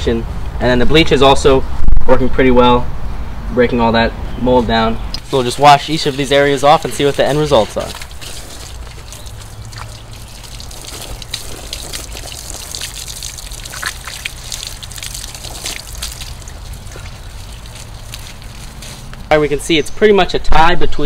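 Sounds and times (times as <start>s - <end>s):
hose water splashing on siding: 5.2s - 19.7s.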